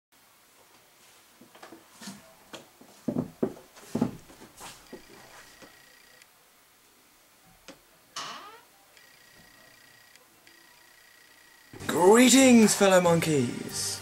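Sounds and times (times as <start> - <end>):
heavy footsteps on floor: 2.8 - 5.5.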